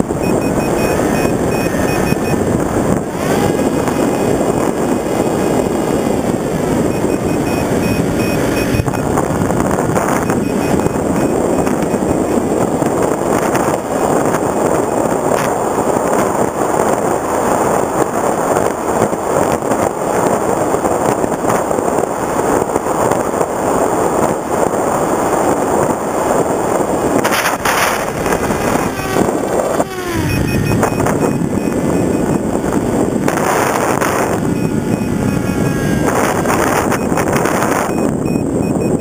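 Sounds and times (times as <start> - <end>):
electric motor and propeller whine: 0.0 - 39.0
wind rushing over microphone: 0.0 - 39.0.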